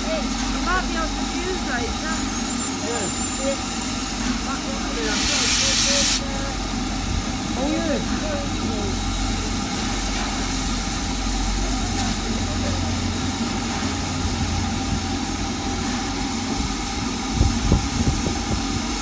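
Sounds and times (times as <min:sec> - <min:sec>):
steam locomotive hissing: 0:00.0 - 0:19.0.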